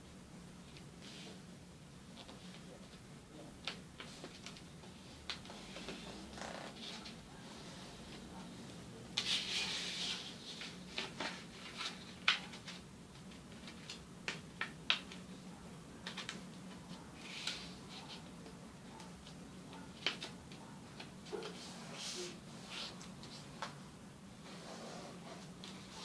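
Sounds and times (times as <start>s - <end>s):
paper rustling while folded: 9.2s - 14.7s.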